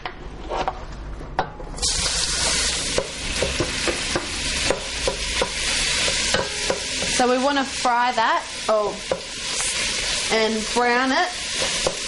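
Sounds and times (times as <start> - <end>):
meat sizzling in hot oil: 1.8 - 12.0
spoon knocking and scraping pot: 2.4 - 7.3, 9.0 - 9.7, 11.6 - 12.0.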